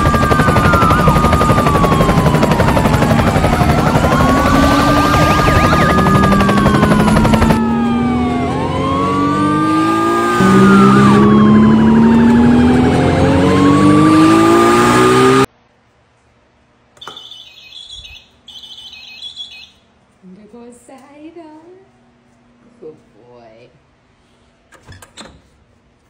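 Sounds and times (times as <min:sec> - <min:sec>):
siren-like wailing: 0:00.0 - 0:15.5
faint high-pitched chirps: 0:17.0 - 0:19.9.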